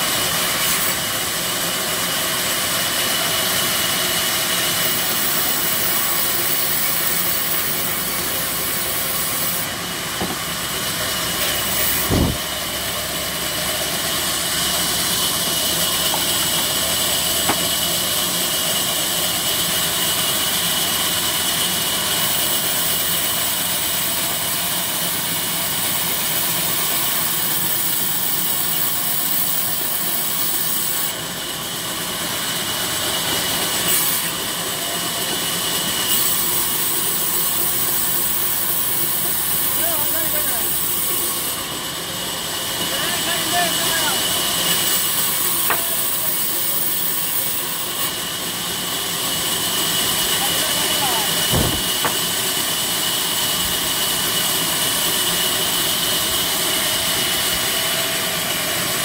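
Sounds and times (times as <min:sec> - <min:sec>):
band saw cutting timber: 0:00.0 - 0:59.0
sharp knock: 0:51.5 - 0:52.2.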